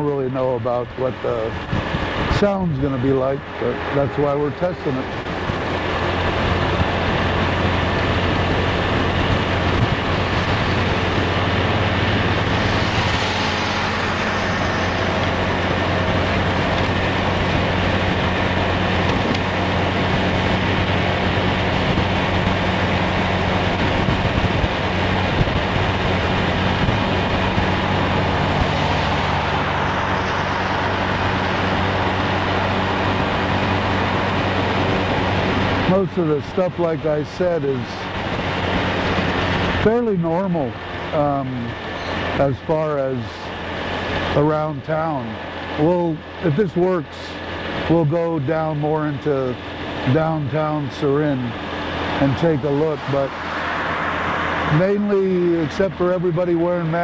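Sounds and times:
wind rushing over microphone: 0.0 - 57.0
scooter engine humming: 1.0 - 35.9.

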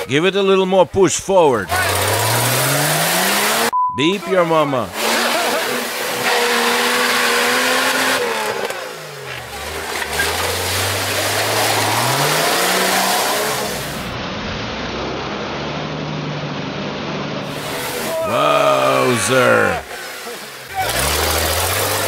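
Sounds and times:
engine revving hard: 1.6 - 3.7, 4.8 - 14.2, 17.4 - 22.0
mud and water spraying: 9.5 - 14.2, 17.5 - 22.0.

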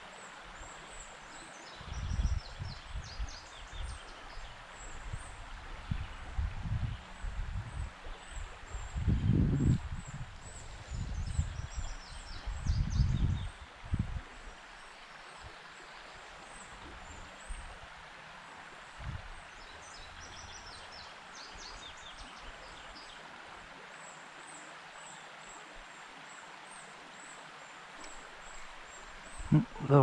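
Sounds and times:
soft outdoor hiss: 0.0 - 30.0
small birds chirping: 0.2 - 13.7, 18.9 - 23.2
soft low thumps: 29.5 - 30.0.

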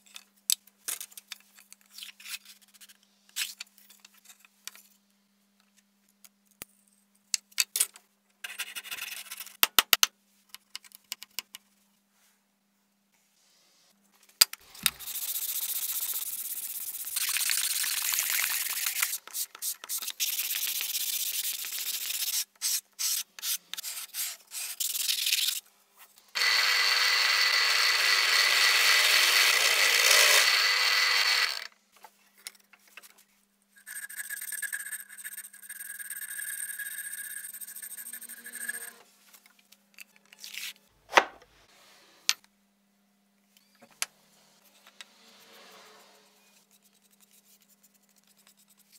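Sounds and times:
drill press whining: 26.4 - 31.7.

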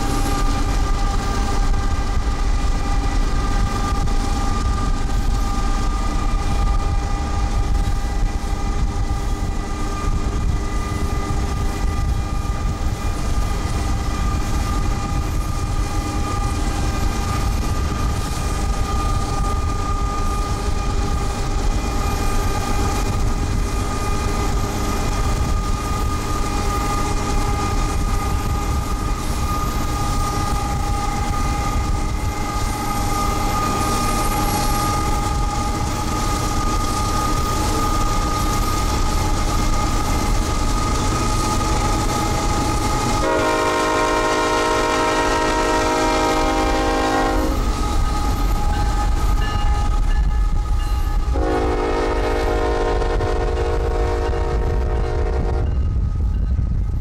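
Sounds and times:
diesel locomotives rumbling: 0.0 - 57.0
locomotive air horn: 43.2 - 48.2, 51.2 - 55.8.

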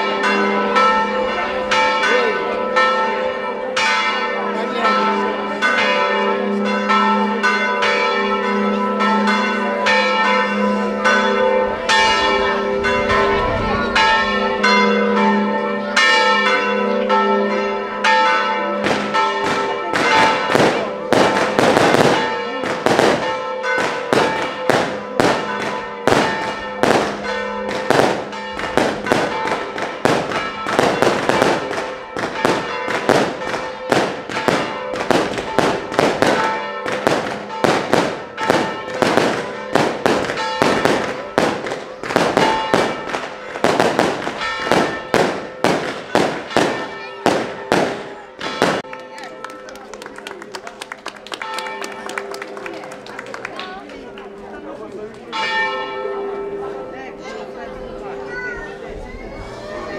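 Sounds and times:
church bells ringing: 0.0 - 59.9
firecrackers cracking: 18.8 - 49.0.

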